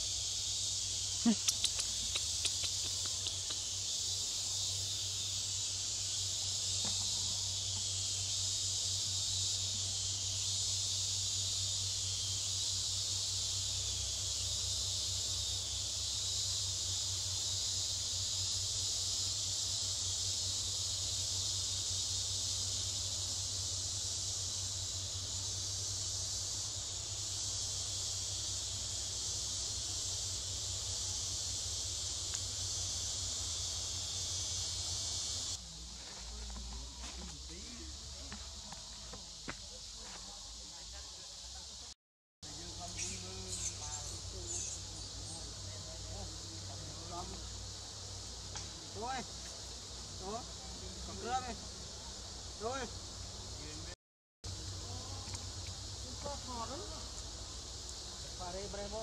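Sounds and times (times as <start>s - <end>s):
high-pitched insect chorus: 0.0s - 59.0s.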